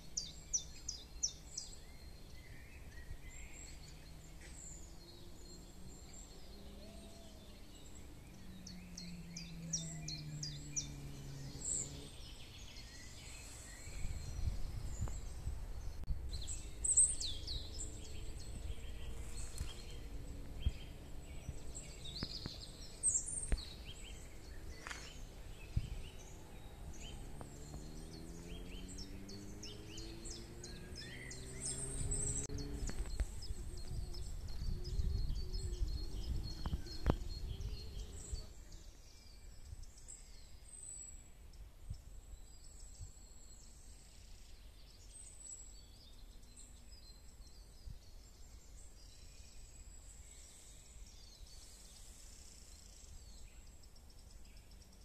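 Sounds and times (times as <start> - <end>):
songbirds chirping and singing: 0.0 - 55.0
low hum rising in pitch: 3.5 - 13.1, 13.7 - 38.4.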